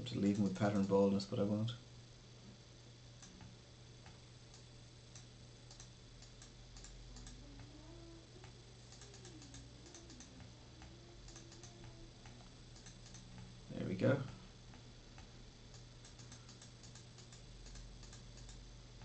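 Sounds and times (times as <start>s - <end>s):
low electrical hum: 0.0s - 19.0s
mouse and keyboard clicks: 8.4s - 13.4s, 15.7s - 18.6s.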